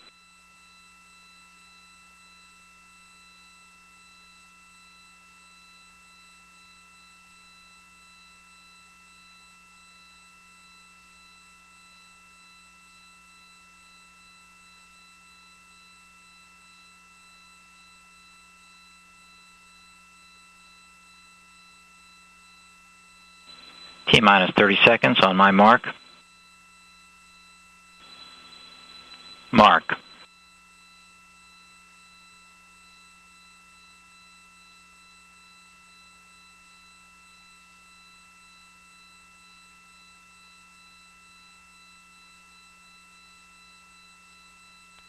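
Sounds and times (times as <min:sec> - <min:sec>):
electrical hum and hiss: 0:23.5 - 0:26.0, 0:28.1 - 0:30.2.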